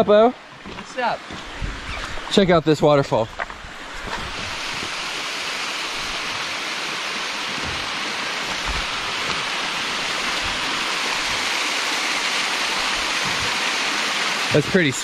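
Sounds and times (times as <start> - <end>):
waterfall splashing: 3.8 - 15.0.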